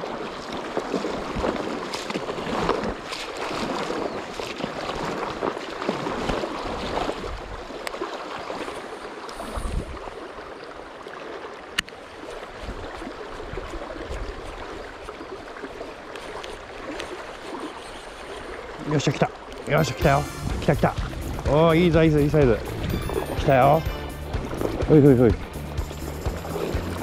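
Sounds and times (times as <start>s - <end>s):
river rushing: 18.4s - 27.0s.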